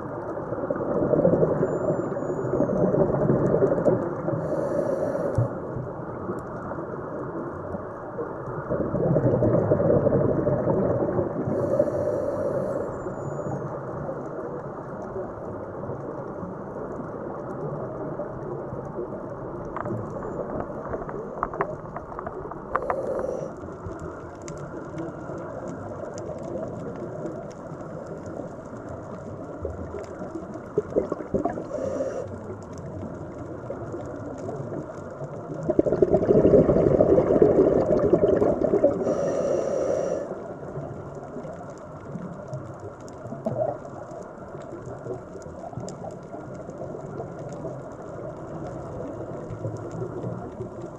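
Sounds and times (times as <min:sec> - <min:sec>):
muffled underwater rush: 0:00.0 - 0:50.9
diver exhaling through regulator: 0:04.4 - 0:05.5, 0:11.5 - 0:13.0, 0:22.7 - 0:23.6, 0:31.4 - 0:32.4, 0:35.8 - 0:40.4.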